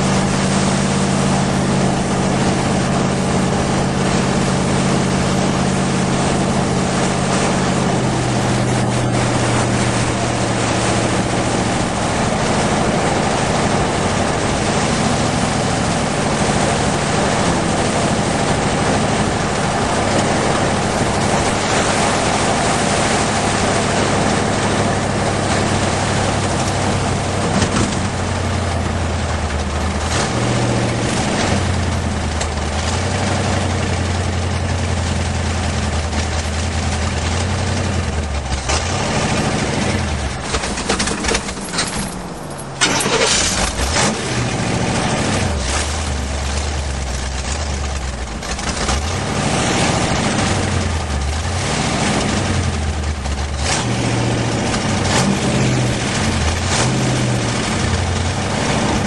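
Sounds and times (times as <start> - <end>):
car engine cruising: 0.0 - 59.0
wind and road noise: 0.0 - 59.0.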